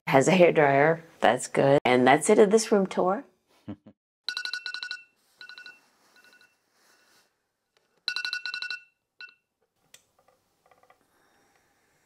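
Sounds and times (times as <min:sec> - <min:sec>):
phone ringtone trilled beeping: 0:04.3 - 0:06.6, 0:08.1 - 0:09.4.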